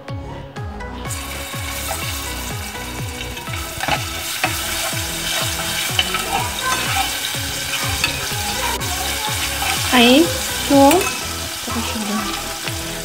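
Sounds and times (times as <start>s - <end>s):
garlic sizzling in pot: 1.1s - 13.0s
spoon stirring and scraping: 1.2s - 13.0s
utensil clicking on pot: 3.2s - 8.4s.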